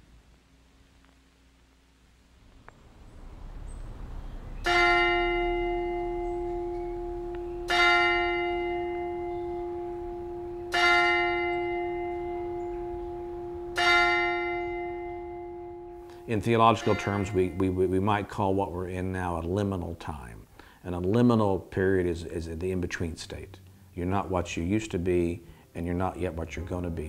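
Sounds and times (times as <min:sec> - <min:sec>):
church bell tolling: 0:03.5 - 0:19.0.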